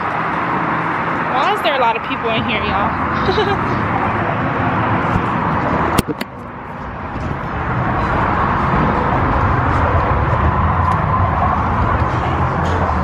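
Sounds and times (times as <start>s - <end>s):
traffic noise: 0.0s - 13.0s.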